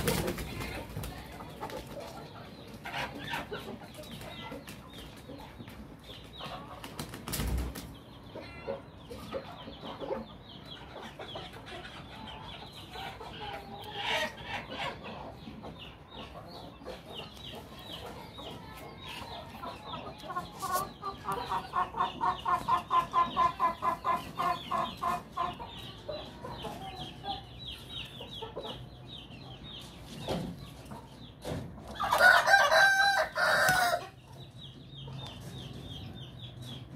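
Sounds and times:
chickens clucking: 0.0s - 36.9s
rooster crowing: 32.1s - 34.0s.

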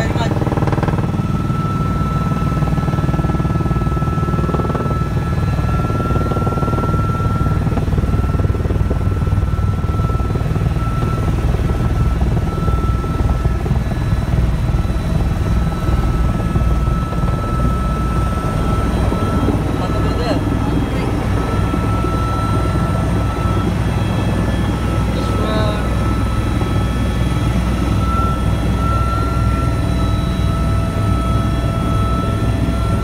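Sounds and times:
helicopter rotor and engine noise: 0.0s - 33.0s.

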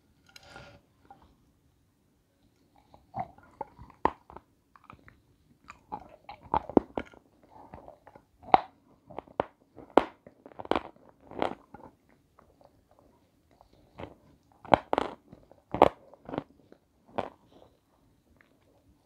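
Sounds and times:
person chewing crunchy food: 2.8s - 17.8s.

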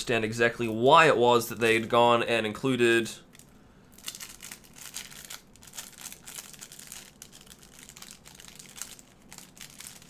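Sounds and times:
packaging crinkling and rustling: 3.3s - 10.0s.

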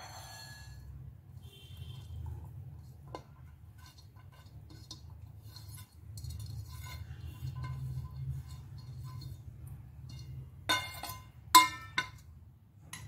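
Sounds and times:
metal plate tapping bowl rim: 3.0s - 9.4s, 10.0s - 12.3s.

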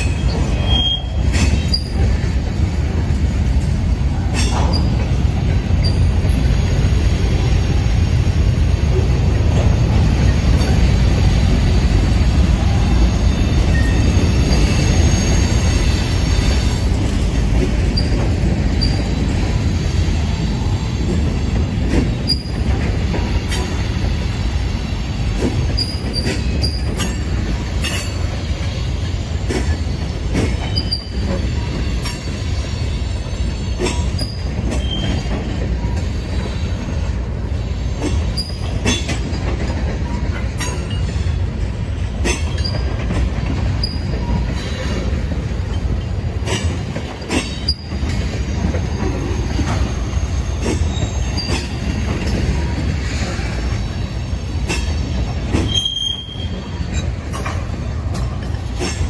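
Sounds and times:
wheel squeals: 0.0s - 2.0s, 13.3s - 16.7s, 22.2s - 22.7s, 30.6s - 32.4s, 33.7s - 36.6s, 43.8s - 45.1s, 47.3s - 53.4s, 54.0s - 57.2s
clicks and clanks over rail joints: 0.0s - 2.6s, 4.3s - 6.4s, 21.1s - 23.9s, 25.3s - 28.4s, 29.4s - 32.3s, 33.8s - 36.5s, 38.0s - 50.0s, 50.6s - 53.6s, 54.6s - 59.0s
train wheels rumbling on rail: 0.0s - 59.0s.

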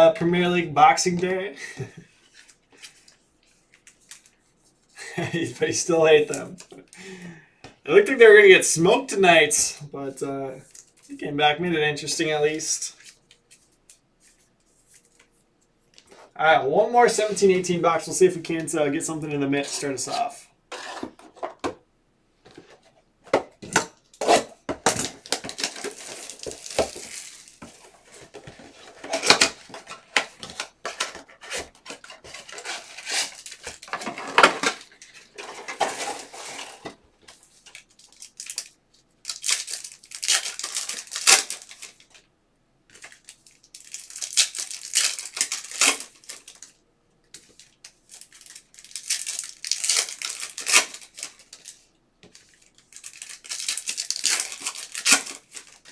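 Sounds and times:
foil wrappers crinkling and tearing: 24.2s - 42.2s, 42.9s - 46.8s, 47.4s - 55.9s.

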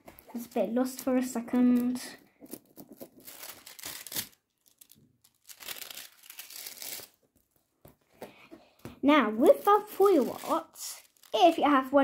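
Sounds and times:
metallic foil crinkling: 0.3s - 7.2s, 9.5s - 11.6s.

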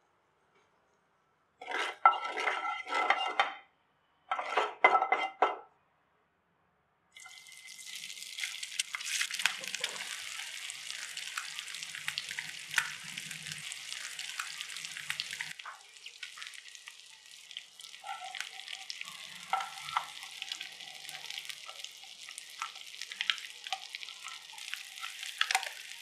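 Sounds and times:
metal utensil scraping in pan: 1.6s - 3.6s, 4.3s - 5.6s, 17.9s - 26.0s
eggs sizzling in hot oil: 7.2s - 26.0s.

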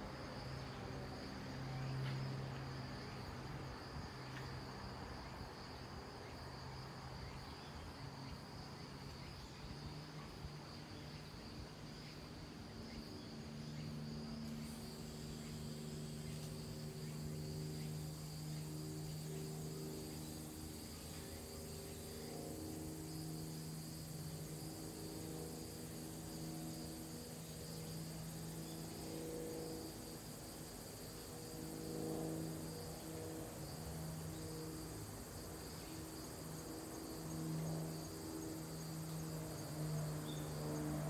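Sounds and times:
higher insect hiss: 0.0s - 41.0s
insects buzzing: 0.0s - 41.0s
low drone of shifting tones: 11.6s - 41.0s.

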